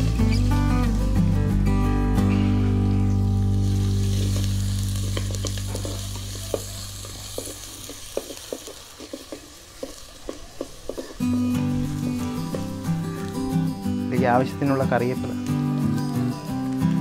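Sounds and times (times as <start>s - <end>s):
food sizzling in hot oil: 0.0s - 1.3s, 2.8s - 14.4s
background music: 0.0s - 7.7s, 11.2s - 17.0s.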